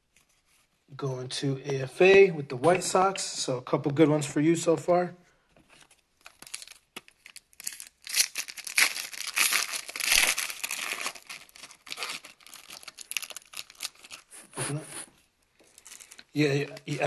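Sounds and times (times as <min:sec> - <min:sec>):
foil wrapper tearing and crinkling: 0:06.2 - 0:14.3, 0:15.7 - 0:16.2.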